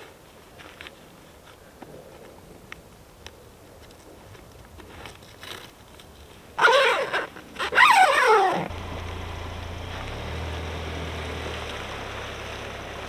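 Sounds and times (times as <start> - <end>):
dog whining: 6.6 - 8.7
pickup truck engine running: 8.7 - 13.0.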